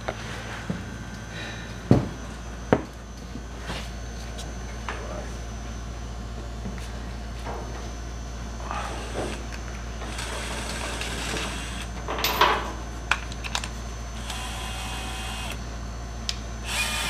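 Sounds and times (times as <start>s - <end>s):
constant low hum: 0.0s - 17.0s
power tool motor whirring: 10.1s - 11.9s, 14.2s - 15.6s, 16.6s - 17.0s.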